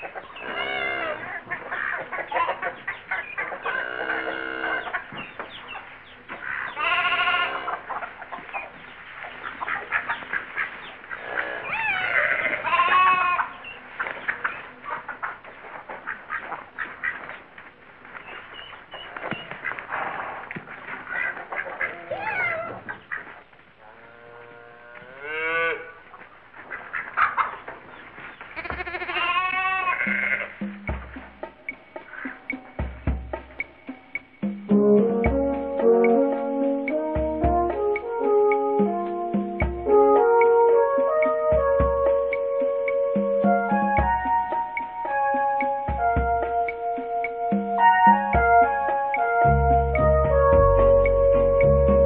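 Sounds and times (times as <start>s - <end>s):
hens clucking: 0.0s - 34.4s
young animal crying: 0.4s - 2.7s, 6.4s - 8.0s, 11.1s - 13.6s, 21.1s - 23.3s, 28.5s - 30.6s
lamb bleating: 0.5s - 1.2s, 6.8s - 7.8s, 11.2s - 13.5s, 28.6s - 30.6s.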